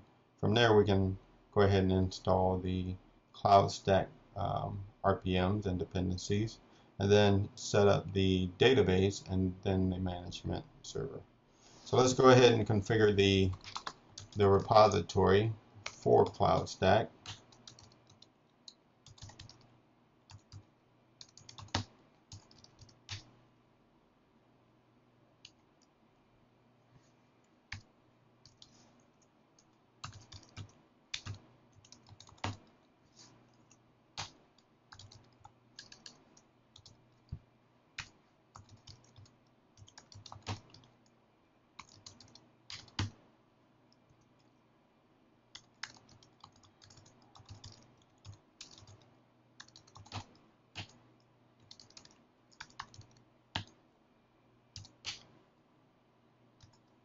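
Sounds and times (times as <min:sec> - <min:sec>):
typing on a keyboard: 0:13.5 - 0:15.0, 0:15.8 - 0:19.7, 0:20.3 - 0:23.3, 0:27.7 - 0:28.7, 0:29.6 - 0:32.8, 0:33.5 - 0:37.3, 0:38.0 - 0:41.1, 0:41.8 - 0:43.2, 0:45.6 - 0:51.0, 0:51.6 - 0:53.8, 0:54.8 - 0:55.3, 0:56.6 - 0:57.0.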